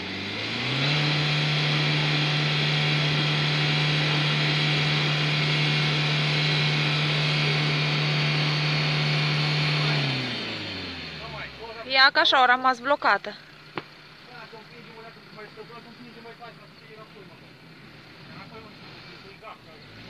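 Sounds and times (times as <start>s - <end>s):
wheels spinning in snow: 0.0s - 11.8s
van engine revving: 0.0s - 20.0s.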